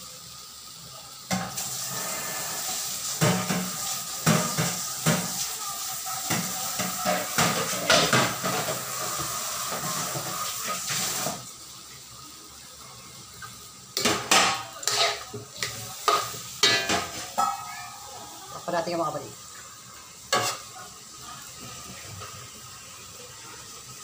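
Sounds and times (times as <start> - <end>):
pork sizzling in a wok: 0.0 - 24.0
metal spatula scraping a wok: 14.8 - 17.5, 20.3 - 20.7.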